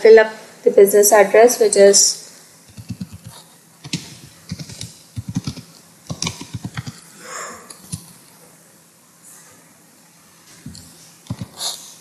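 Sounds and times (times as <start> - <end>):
typing on a keyboard: 2.7 - 7.0, 10.7 - 11.6.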